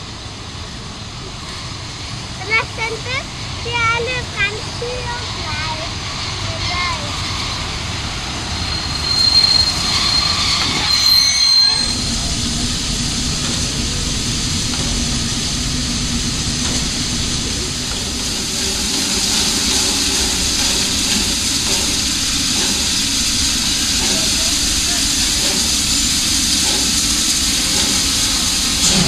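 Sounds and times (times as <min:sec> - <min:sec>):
steam locomotive hissing: 0:00.0 - 0:29.0
thin high squeal: 0:08.5 - 0:12.2.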